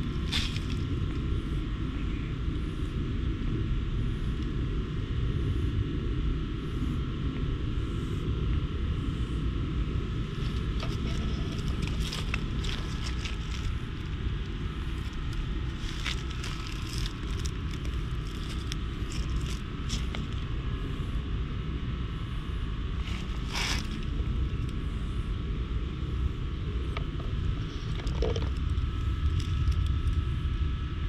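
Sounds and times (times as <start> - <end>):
rustling leaves and clicks: 0.0 - 1.0, 10.3 - 20.5, 23.0 - 24.7
wind rumble on microphone: 0.0 - 31.0.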